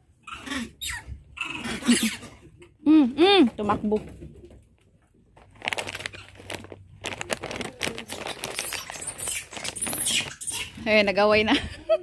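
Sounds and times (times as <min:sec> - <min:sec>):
plastic snack bag crinkling: 0:05.3 - 0:10.7.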